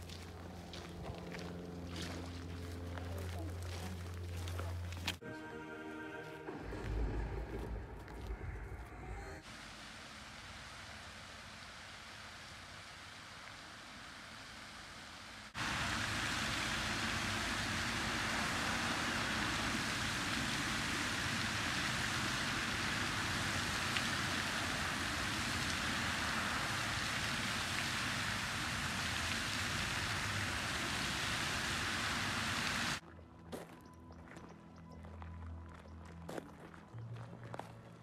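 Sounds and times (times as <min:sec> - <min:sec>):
fountain water splashing into basin: 0:09.4 - 0:33.0.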